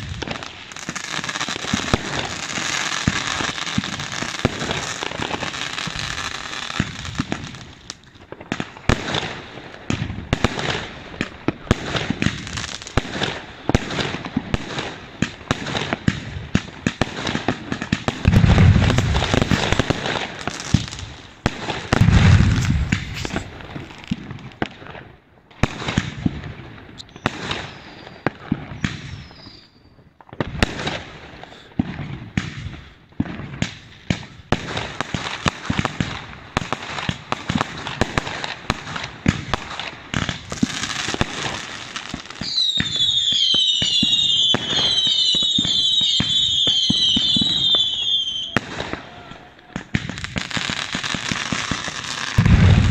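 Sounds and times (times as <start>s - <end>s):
fireworks bangs and crackling: 0.0s - 52.9s
deep firework booms: 8.4s - 25.0s, 49.7s - 52.9s.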